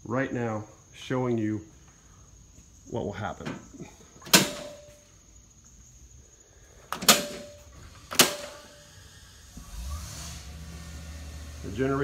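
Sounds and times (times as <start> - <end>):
circuit breakers clacking: 3.4 - 5.0, 6.9 - 8.8.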